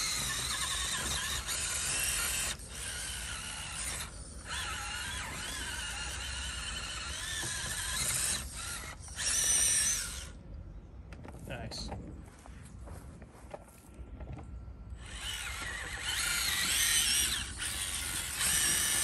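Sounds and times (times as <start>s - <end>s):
toy car electric motor whining: 0.0s - 10.4s, 15.0s - 19.0s.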